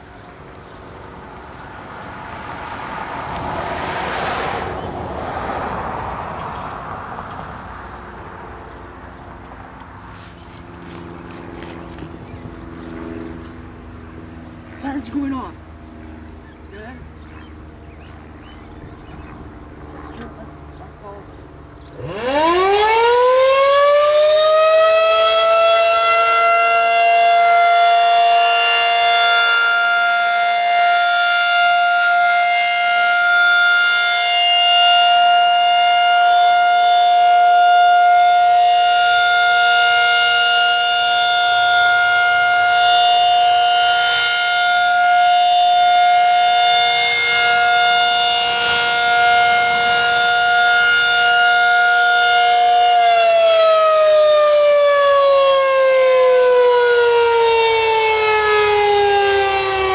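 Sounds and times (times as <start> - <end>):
rotating siren wailing: 21.9 - 59.9.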